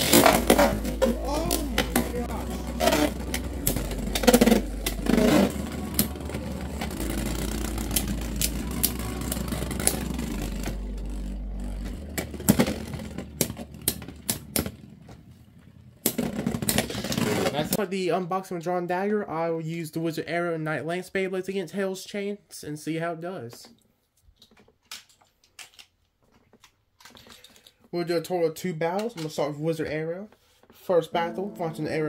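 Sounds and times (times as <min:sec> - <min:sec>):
spinning tops whirring: 0:00.0 - 0:14.8.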